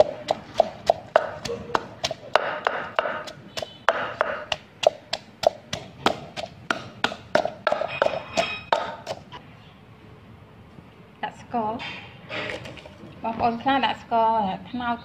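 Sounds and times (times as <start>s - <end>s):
pestle pounding in clay mortar: 0.0s - 9.3s.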